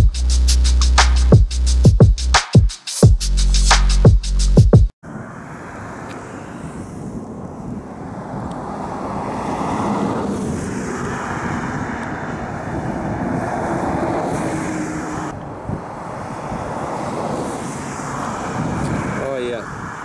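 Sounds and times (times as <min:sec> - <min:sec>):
wind buffeting microphone: 0:05.6 - 0:20.0.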